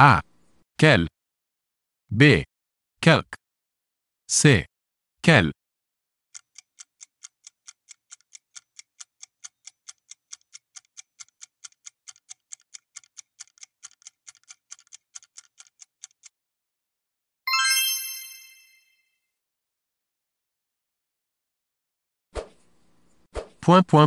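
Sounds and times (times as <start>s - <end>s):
clock-like timer ticking: 6.3s - 16.3s.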